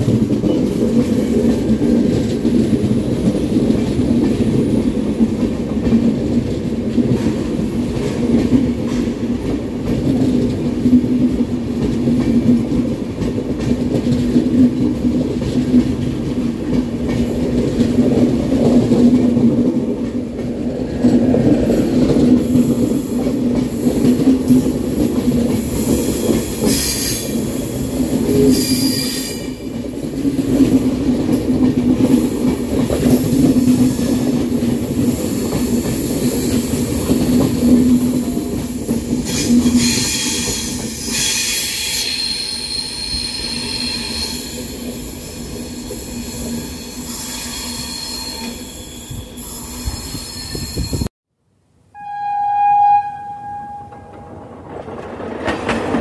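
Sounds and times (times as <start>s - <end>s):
train wheels rumbling on rails: 0.0s - 51.1s, 53.6s - 56.0s
high-pitched wheel squeal: 39.8s - 51.1s, 52.0s - 54.2s.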